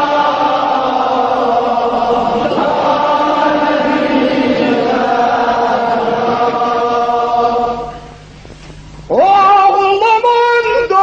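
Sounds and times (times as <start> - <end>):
voices chanting: 0.0 - 8.3.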